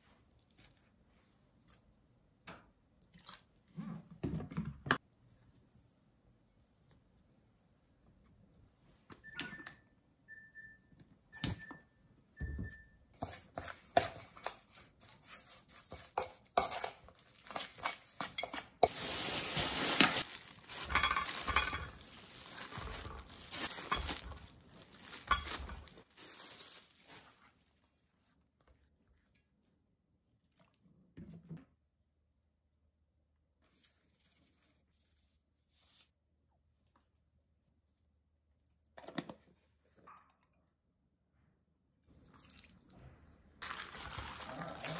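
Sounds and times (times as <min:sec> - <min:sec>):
spoon stirring thick marinade: 0:13.2 - 0:19.1
rustling and handling: 0:13.2 - 0:29.3, 0:33.6 - 0:36.2, 0:43.6 - 0:44.9.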